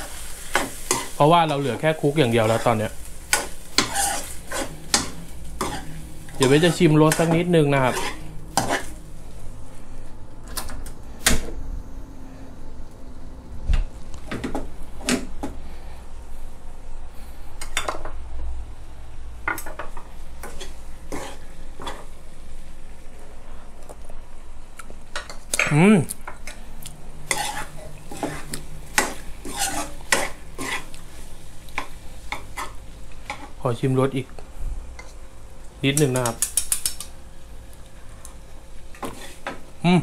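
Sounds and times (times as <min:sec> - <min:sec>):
food sizzling: 0:00.0 - 0:10.1, 0:17.5 - 0:40.0
metal ladle scraping frying pan: 0:03.3 - 0:09.0, 0:27.2 - 0:31.0.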